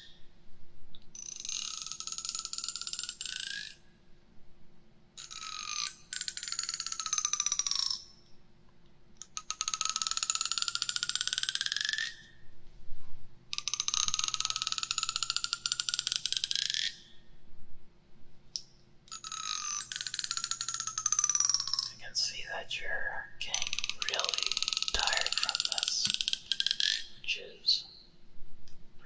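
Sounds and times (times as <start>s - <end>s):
plastic comb teeth buzzing: 23.5s - 27.1s.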